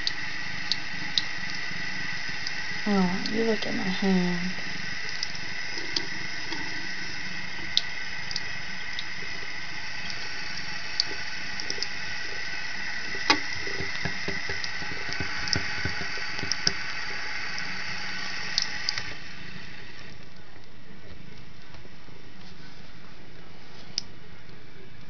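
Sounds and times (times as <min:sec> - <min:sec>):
soft taps: 0:13.3 - 0:16.8
tap running into sink: 0:13.3 - 0:16.8.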